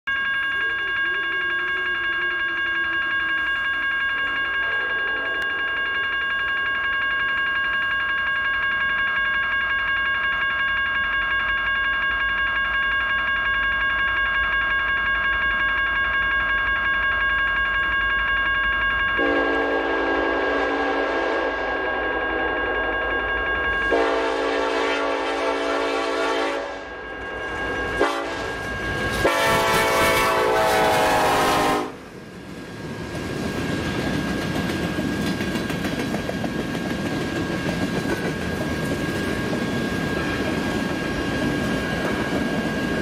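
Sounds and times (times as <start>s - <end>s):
railroad crossing bell ringing: 0.1s - 43.0s
locomotive horn: 19.2s - 22.5s, 23.9s - 27.0s, 28.0s - 28.6s, 29.2s - 32.1s
freight train rumble: 19.2s - 43.0s.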